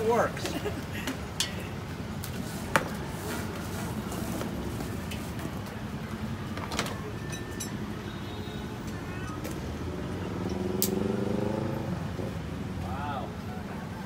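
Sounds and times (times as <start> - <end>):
road traffic rumble: 0.0 - 14.0
vehicle engine revving: 9.8 - 12.4.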